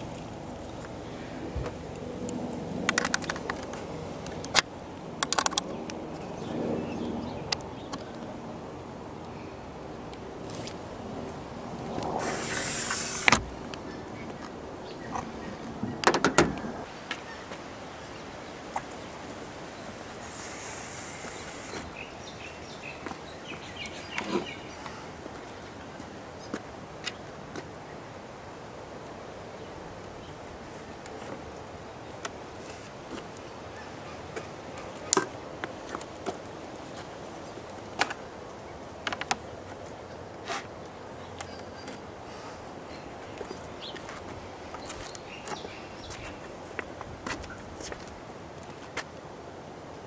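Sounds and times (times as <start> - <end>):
steady hiss: 10.6 - 15.5, 16.6 - 33.7
birds chirping: 11.9 - 26.6, 41.0 - 47.9
rack section sliding hiss: 12.2 - 13.5, 20.2 - 21.9.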